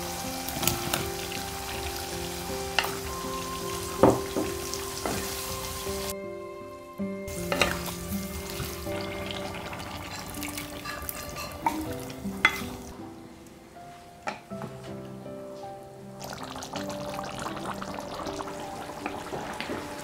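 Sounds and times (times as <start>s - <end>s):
food sizzling in a pan: 0.0s - 6.1s, 7.3s - 13.0s, 16.2s - 20.0s
spatula knocking on pan: 4.0s - 5.3s.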